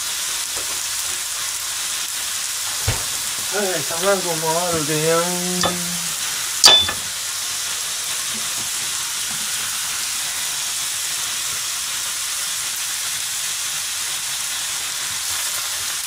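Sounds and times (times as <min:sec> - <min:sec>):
food sizzling in a pan: 0:00.0 - 0:16.0
frying pan knocking on grate: 0:04.6 - 0:07.1.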